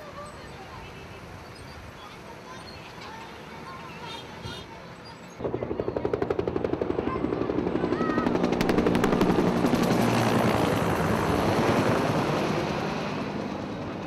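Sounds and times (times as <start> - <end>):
helicopter rotor blades: 5.4 - 14.0.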